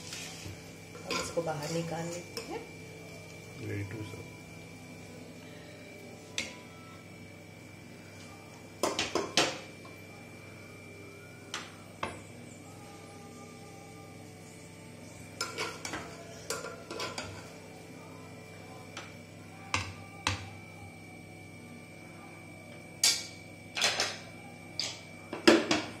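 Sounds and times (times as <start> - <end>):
utensil clanking on pan and plate: 15.4 - 17.5.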